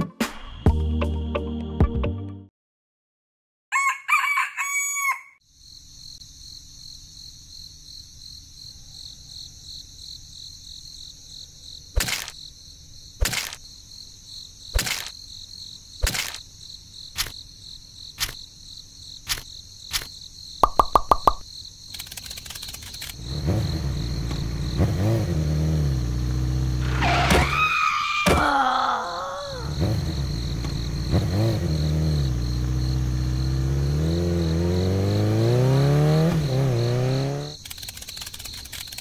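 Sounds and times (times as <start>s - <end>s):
rooster crowing: 3.7s - 5.4s
insects chirping: 3.8s - 39.0s
sharp clicks: 16.0s - 16.4s, 17.2s - 17.4s, 19.2s - 23.2s, 37.6s - 39.0s.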